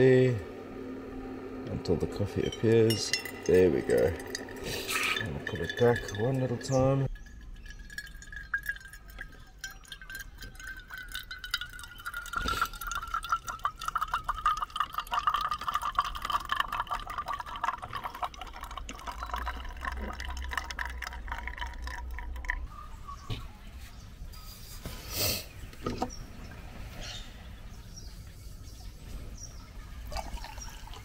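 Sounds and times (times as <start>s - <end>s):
faint ringing tone: 0.0s - 17.8s
espresso dripping into a mug: 0.0s - 22.8s, 30.1s - 31.0s.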